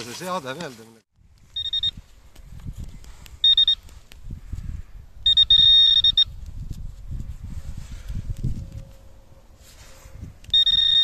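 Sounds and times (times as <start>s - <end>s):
metal detector beeping: 1.5s - 2.0s, 3.4s - 3.9s, 5.2s - 6.4s, 10.5s - 11.0s.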